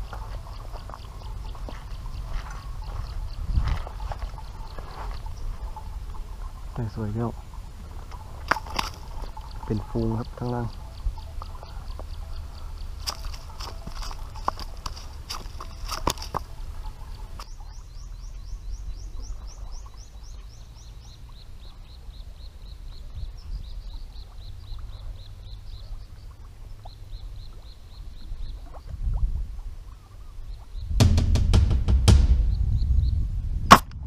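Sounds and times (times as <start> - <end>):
wind rumbling on microphone: 0.0 - 34.0
low thuds: 30.8 - 34.0.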